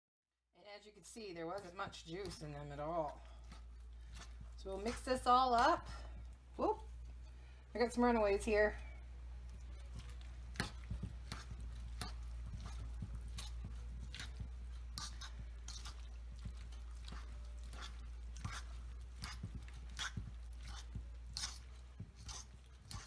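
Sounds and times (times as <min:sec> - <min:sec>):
wet squishing and scraping: 0:00.9 - 0:23.0.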